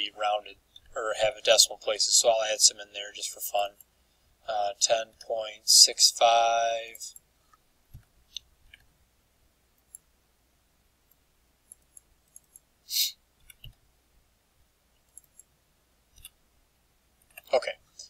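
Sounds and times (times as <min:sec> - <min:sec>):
mouse clicks: 0:11.1 - 0:12.7, 0:15.0 - 0:15.5.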